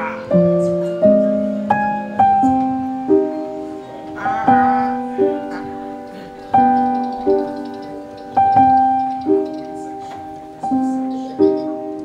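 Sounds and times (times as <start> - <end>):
gentle piano melody: 0.0 - 12.0.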